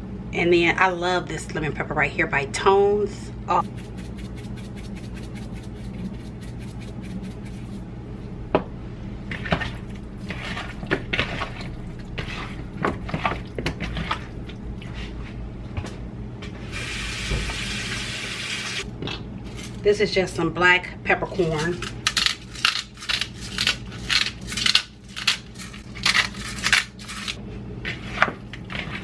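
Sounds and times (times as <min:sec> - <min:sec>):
steady low hum: 0:00.0 - 0:17.2.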